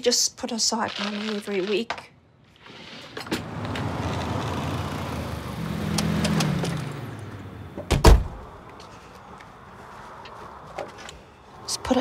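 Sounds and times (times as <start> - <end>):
road noise: 0.0 - 12.0
car door thumping shut: 7.8 - 8.4.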